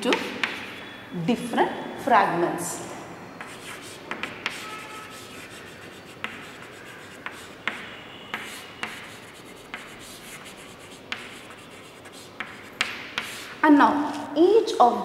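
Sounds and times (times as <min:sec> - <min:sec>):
chalk tapping on board: 0:00.0 - 0:00.8, 0:03.4 - 0:13.6
chalk scratching on chalkboard: 0:00.1 - 0:01.8, 0:03.4 - 0:13.6.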